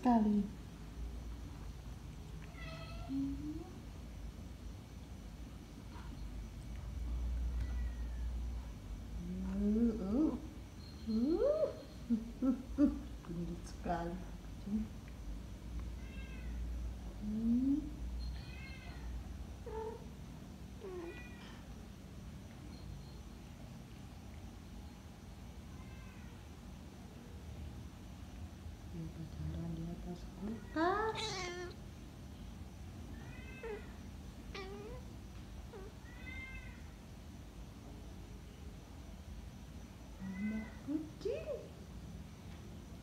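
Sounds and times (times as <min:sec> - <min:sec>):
cats yowling and meowing: 0:31.0 - 0:31.8, 0:33.2 - 0:35.1, 0:35.7 - 0:37.0.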